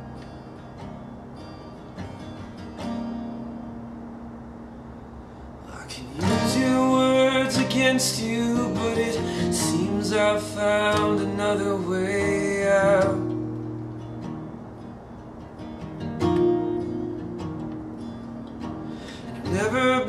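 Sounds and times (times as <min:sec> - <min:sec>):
strummed acoustic guitar: 0:00.0 - 0:20.0
man singing: 0:05.7 - 0:13.4, 0:19.4 - 0:20.0.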